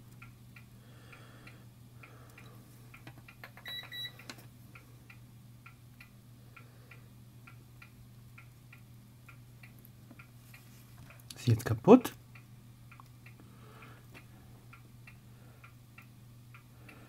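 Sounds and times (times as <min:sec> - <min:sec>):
faint regular ticking: 0:00.0 - 0:17.0
steady low hum: 0:00.0 - 0:17.0
short electronic beep: 0:03.6 - 0:04.1.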